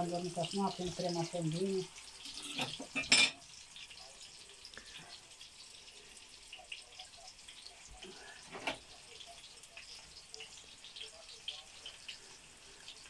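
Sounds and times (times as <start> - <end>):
meat frying in oil: 0.0 - 13.0.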